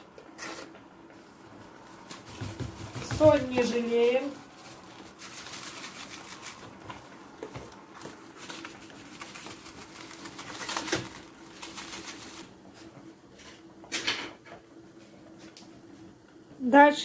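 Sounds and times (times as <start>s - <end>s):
rock salt pouring: 4.2s - 6.8s, 8.2s - 12.5s.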